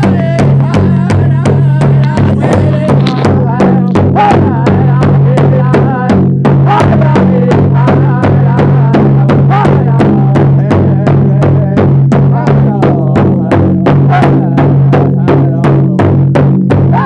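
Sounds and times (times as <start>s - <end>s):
high wavering voices singing: 0.0s - 6.1s
hand drum steady beat: 0.0s - 17.0s.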